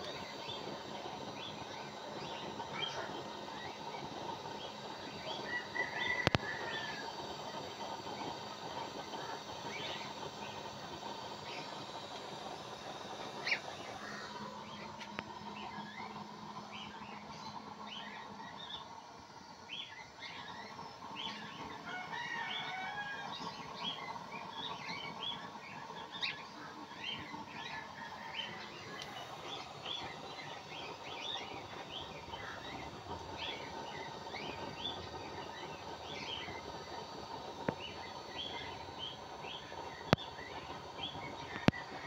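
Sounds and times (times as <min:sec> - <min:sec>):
steady background hum: 0:00.0 - 0:42.0.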